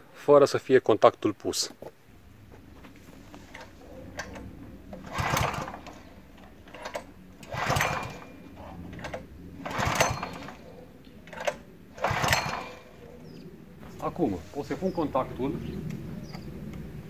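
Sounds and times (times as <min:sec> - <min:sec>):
engine turning over: 0:03.2 - 0:13.4
recoil starter cord pulled: 0:03.4 - 0:13.0.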